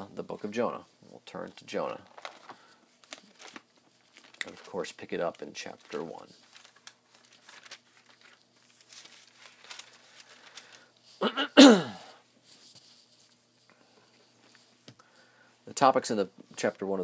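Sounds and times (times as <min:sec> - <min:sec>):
thin pages being turned: 0:01.4 - 0:10.8.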